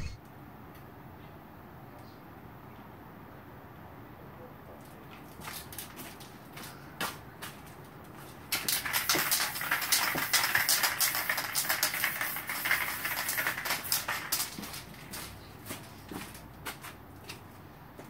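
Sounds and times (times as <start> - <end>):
spray paint crackling hiss: 8.4 - 16.8.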